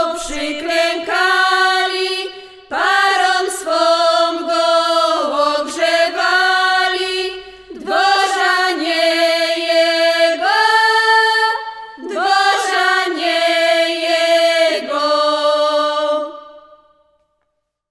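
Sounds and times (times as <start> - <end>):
folk ensemble singing and playing: 0.0 - 16.7.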